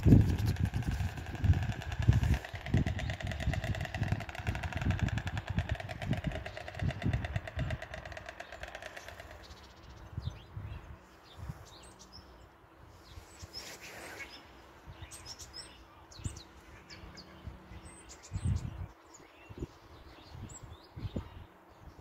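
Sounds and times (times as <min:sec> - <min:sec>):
rumbling bumps on microphone: 0:00.0 - 0:09.2
engine: 0:00.0 - 0:09.8
songbirds chirping: 0:00.0 - 0:22.0.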